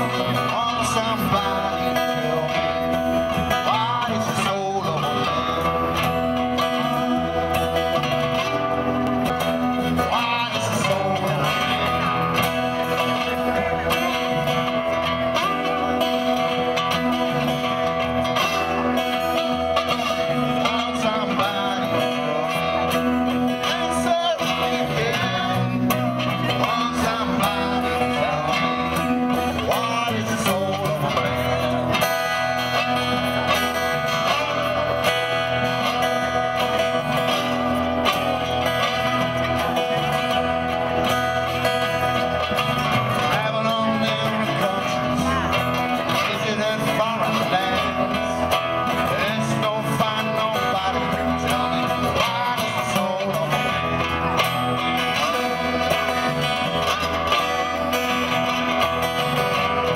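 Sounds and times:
plucked guitar music: 0.0 - 59.9.

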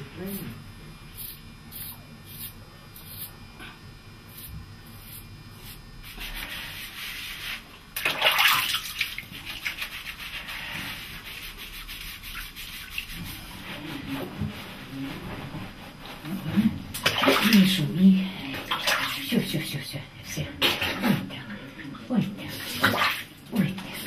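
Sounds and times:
hands scrubbing wet hair: 5.7 - 19.6.

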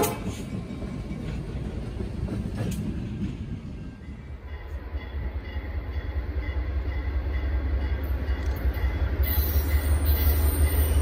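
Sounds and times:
wheels hissing on rails: 8.4 - 11.0.

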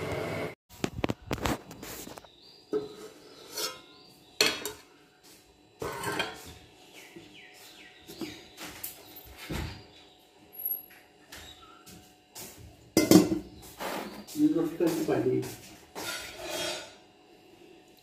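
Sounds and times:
metal pot knocking on counter: 13.0 - 13.4.

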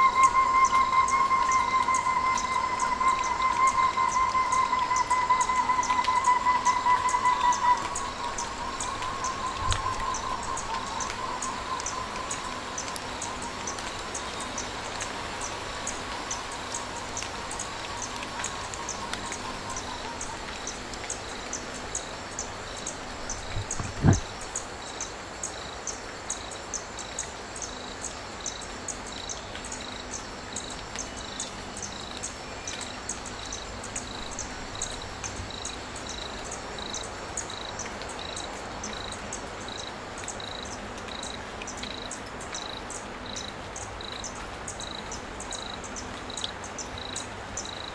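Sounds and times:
wavering whistle-like tone: 0.0 - 14.6
crickets chirping: 0.0 - 47.9.

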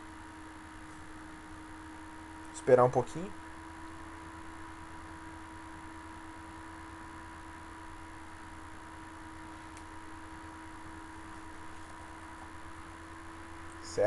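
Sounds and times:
electrical hum: 0.0 - 14.0.

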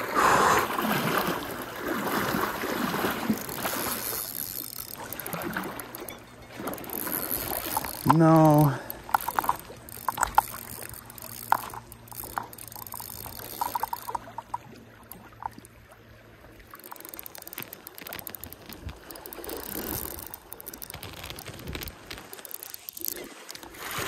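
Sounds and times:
water splashing: 0.0 - 24.0
fishing reel clicking: 2.4 - 15.8, 16.6 - 24.0.

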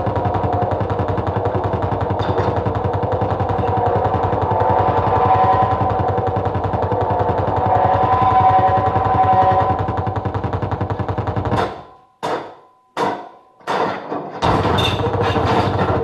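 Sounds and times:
rattling low distorted pulse: 0.0 - 12.2, 14.4 - 16.0
sustained feedback tones: 0.0 - 12.6.

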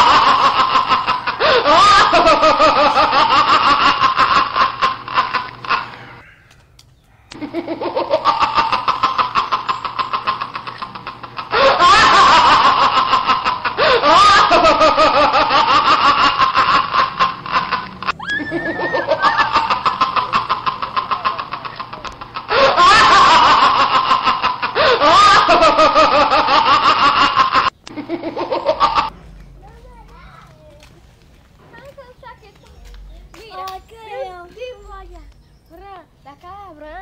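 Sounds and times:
exaggerated laughing: 0.0 - 6.2, 7.3 - 29.1.

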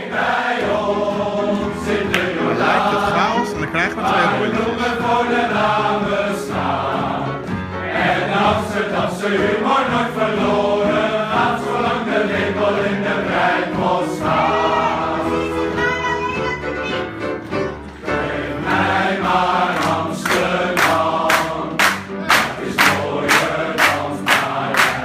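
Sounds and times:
men's choir singing: 0.0 - 15.7, 18.0 - 25.0
piano accompaniment: 0.0 - 25.0
people clapping in time: 2.0 - 4.9, 19.7 - 25.0.

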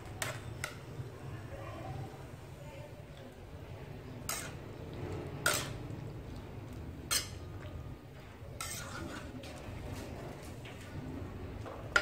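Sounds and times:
metal ladle scraping wok: 4.2 - 6.1, 7.0 - 7.6, 8.5 - 9.6.

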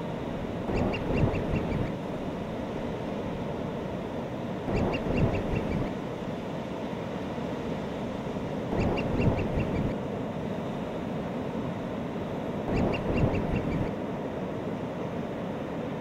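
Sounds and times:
surf rushing on beach: 0.0 - 16.0
seabirds calling: 0.5 - 2.9, 4.7 - 6.0, 8.6 - 10.0, 12.7 - 14.0.

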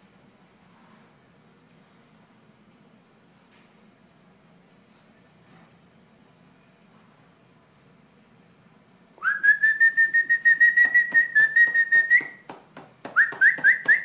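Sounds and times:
person whistling: 9.2 - 12.4, 13.1 - 14.0.

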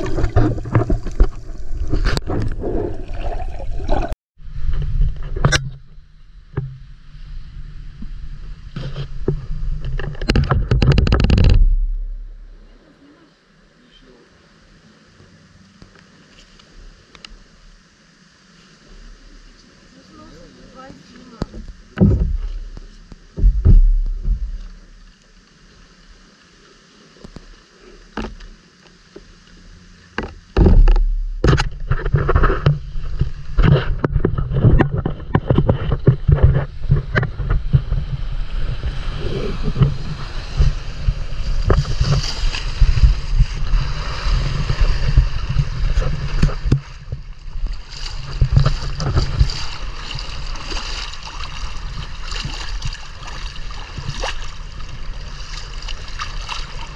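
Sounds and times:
shallow seawater hissing: 0.0 - 4.2, 12.5 - 34.0, 37.8 - 56.9
handling rumble and knocks: 0.0 - 7.0, 8.0 - 12.7, 21.4 - 25.2, 30.1 - 50.8.

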